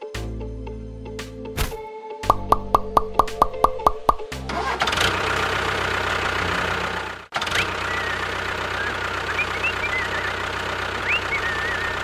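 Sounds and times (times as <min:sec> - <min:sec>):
tractor engine chugging: 0:04.0 - 0:12.0.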